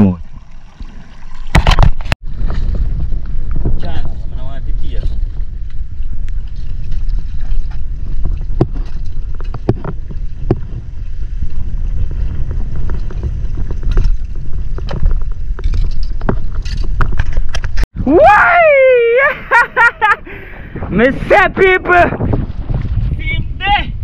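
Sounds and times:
wind buffeting microphone: 0.3 - 24.0
knocks and scrapes on rock: 5.0 - 10.8, 12.0 - 17.9.

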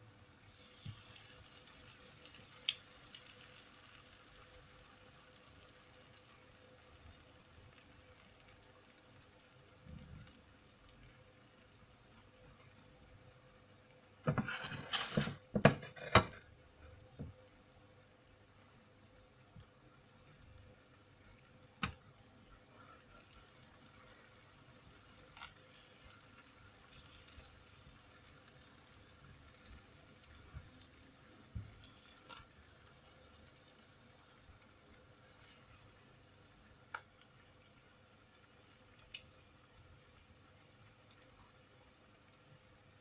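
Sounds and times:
food sizzling in oil: 0.0 - 17.3, 20.1 - 43.0.

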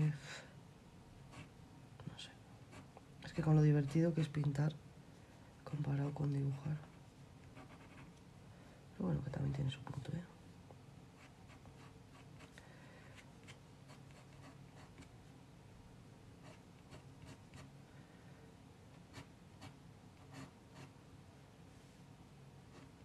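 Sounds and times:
low steady hum: 0.0 - 23.0
pencil sketching on paper: 19.1 - 20.9.

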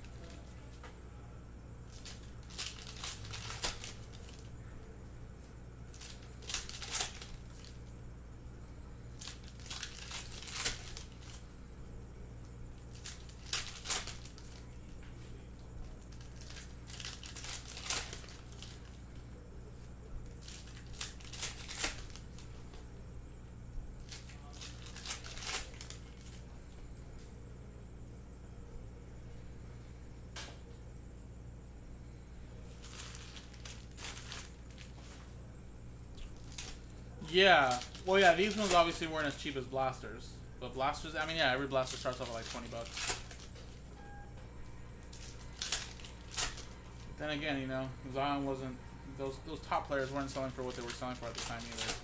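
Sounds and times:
foil packs tearing and crinkling: 1.9 - 4.5, 5.9 - 7.8, 9.1 - 11.4, 12.9 - 14.7, 16.0 - 19.0, 20.3 - 22.5, 24.0 - 26.4, 32.8 - 35.0, 36.2 - 39.6, 40.8 - 43.8, 45.0 - 47.2, 49.2 - 52.0.

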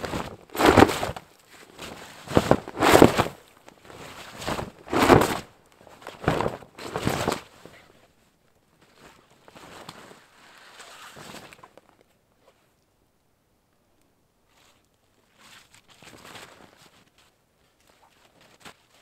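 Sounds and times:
canvas cloak rustling and flapping: 0.0 - 7.6, 8.8 - 11.7, 14.6 - 19.0.

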